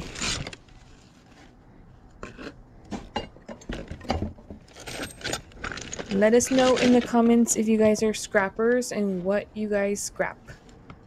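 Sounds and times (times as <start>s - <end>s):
hands rummaging through debris: 3.6s - 7.4s
paper and plastic rustling: 4.7s - 7.4s.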